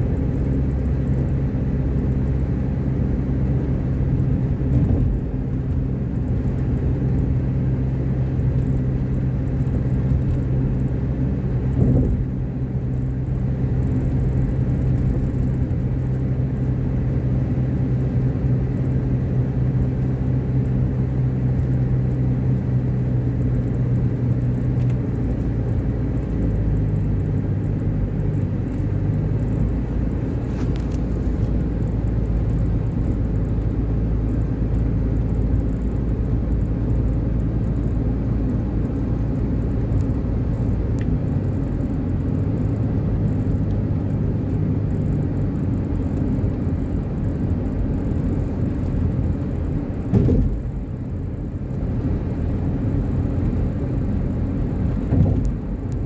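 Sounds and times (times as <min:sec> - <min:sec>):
car engine hum: 0:00.0 - 0:56.0
road rumble: 0:00.0 - 0:56.0
thump: 0:50.1 - 0:50.6.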